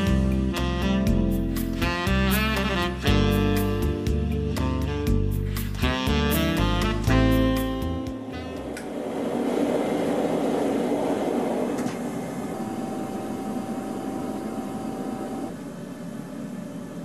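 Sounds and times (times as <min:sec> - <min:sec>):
steady hum: 0:08.2 - 0:17.0
machine rumbling: 0:08.3 - 0:17.0.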